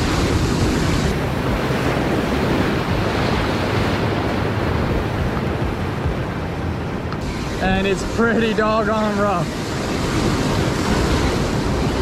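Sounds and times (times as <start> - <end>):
waves breaking over rocks: 0.0 - 12.0
wind buffeting microphone: 0.0 - 12.0.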